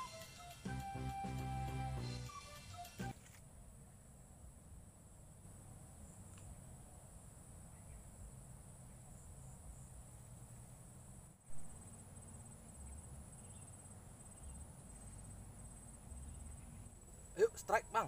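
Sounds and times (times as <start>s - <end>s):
insects chirring: 5.2s - 18.0s.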